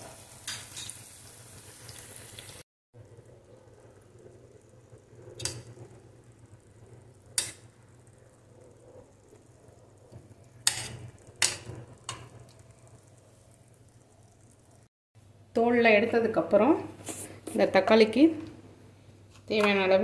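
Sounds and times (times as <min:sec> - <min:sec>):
food sizzling in oil: 0:00.0 - 0:02.7, 0:03.4 - 0:14.9.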